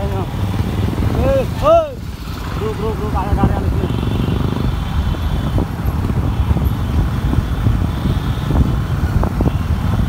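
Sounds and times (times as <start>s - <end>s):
motorcycle engines rumbling: 0.0s - 10.0s
wind buffeting microphone: 0.0s - 10.0s.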